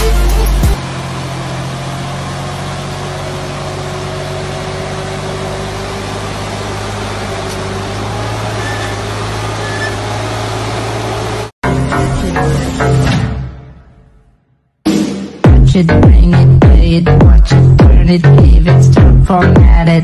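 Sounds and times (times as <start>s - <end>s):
tractor diesel engine droning: 0.0s - 13.8s.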